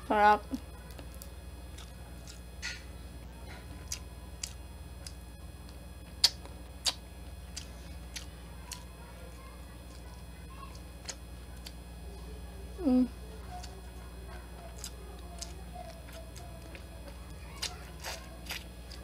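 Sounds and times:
steady low hum: 0.0s - 19.0s
chewing mouth clicks and smacks: 3.9s - 8.8s.

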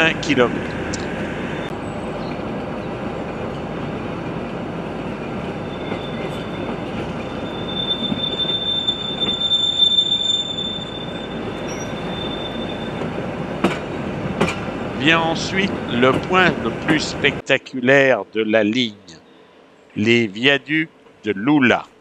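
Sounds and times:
train carriages rolling: 0.0s - 17.4s
steel wheels squealing: 5.4s - 13.2s.

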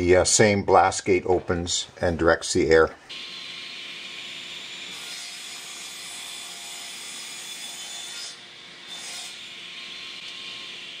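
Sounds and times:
miter saw cutting wood: 3.1s - 11.0s.

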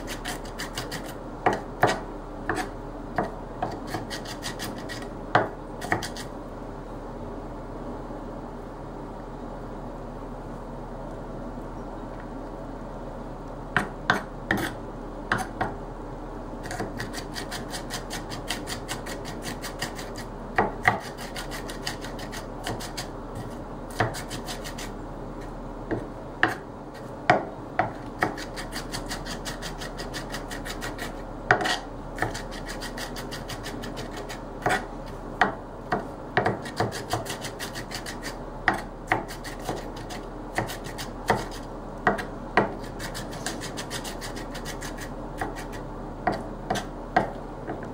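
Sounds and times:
knife mincing in plastic bowl: 0.0s - 2.7s, 3.6s - 5.1s, 16.6s - 25.0s, 28.0s - 35.2s, 36.4s - 47.3s.

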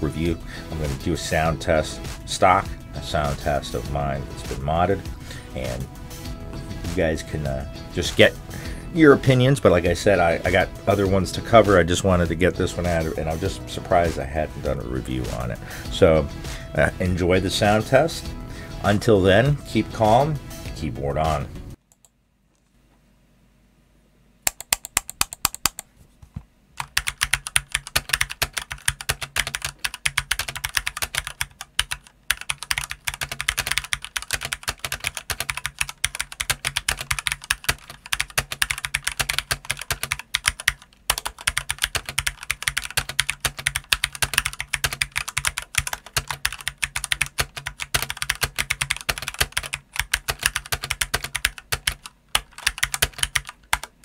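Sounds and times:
typing on mechanical keyboard: 24.5s - 25.8s, 26.8s - 53.9s.

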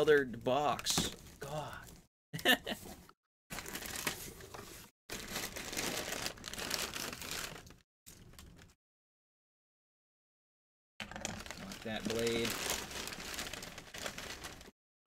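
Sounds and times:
packing paper crinkling: 3.5s - 8.7s, 11.0s - 14.7s.

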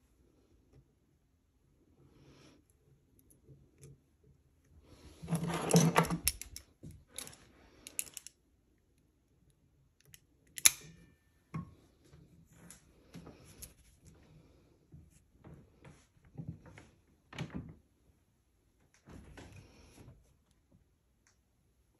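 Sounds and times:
metal chain clicking and rattling: 5.3s - 8.3s.

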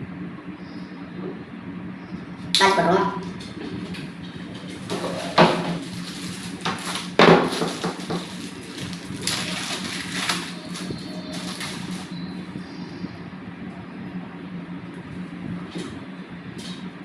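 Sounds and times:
plastic bag crinkling: 4.7s - 12.2s.

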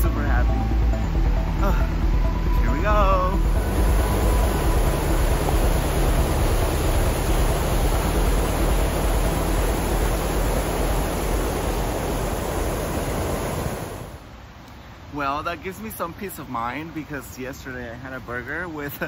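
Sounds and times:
waterfall rushing: 1.6s - 15.9s.

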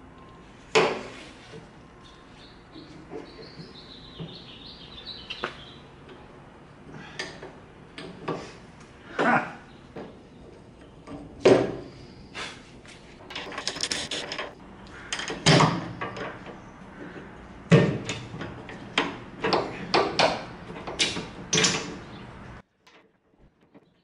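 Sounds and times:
metal straps clanking and scraping: 13.2s - 24.0s.

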